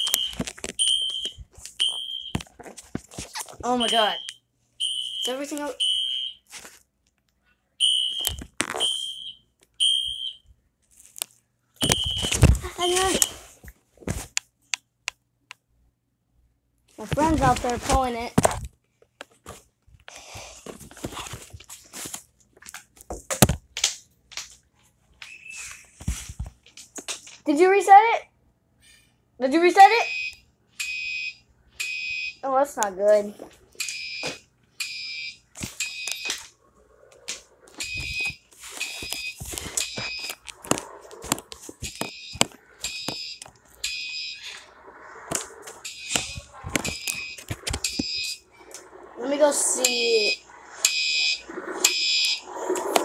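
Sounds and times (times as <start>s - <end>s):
fire alarm horn blasts: 0.0s - 2.4s, 3.8s - 6.4s, 7.8s - 10.4s.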